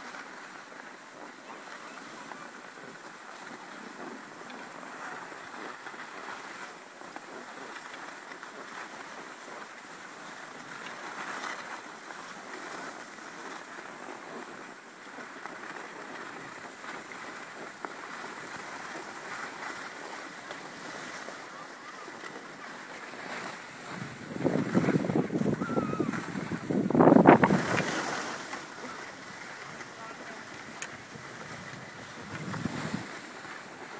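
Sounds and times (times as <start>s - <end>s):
skis sliding over snow: 0.0s - 33.9s
wind on microphone: 23.1s - 33.9s.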